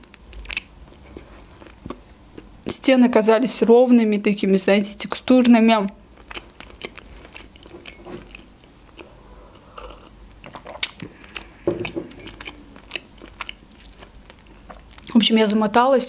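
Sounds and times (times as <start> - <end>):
person chewing with wet smacks: 0.0 - 2.8, 6.1 - 15.6.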